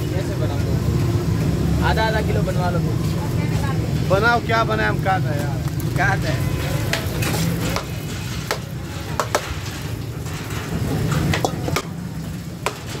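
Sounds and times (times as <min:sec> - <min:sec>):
metal bowl scraping rice from pot: 0:06.4 - 0:11.8.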